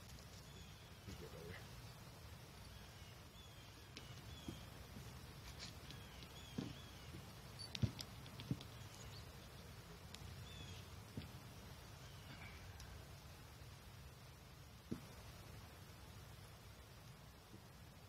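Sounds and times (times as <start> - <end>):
small birds chirping: 0.0 - 13.2.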